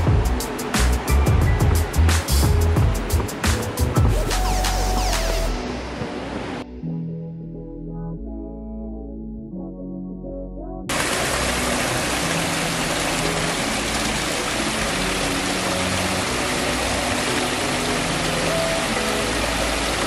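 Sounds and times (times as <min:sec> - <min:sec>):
water rushing down a cascade: 0:10.9 - 0:20.0.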